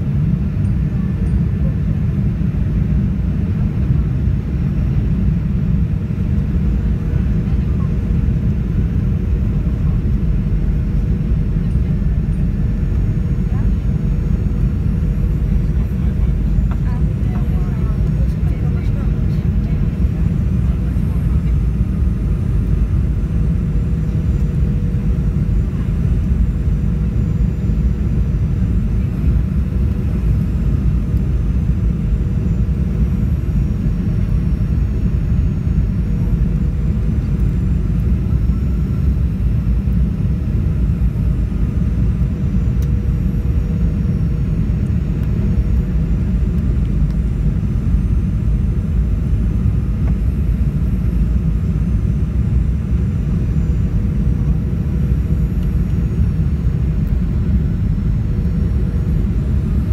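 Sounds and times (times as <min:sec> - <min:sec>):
airplane cabin rumble: 0:00.0 - 0:59.9
faint high whine: 0:05.1 - 0:59.9.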